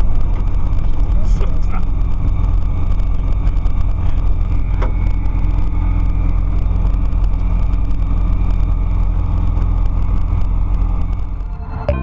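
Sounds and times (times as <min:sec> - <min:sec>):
propeller engine humming: 0:00.0 - 0:12.0.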